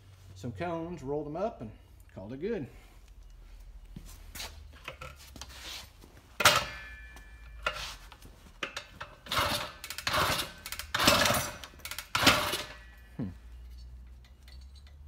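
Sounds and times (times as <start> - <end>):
metallic ring: 6.4 - 8.1.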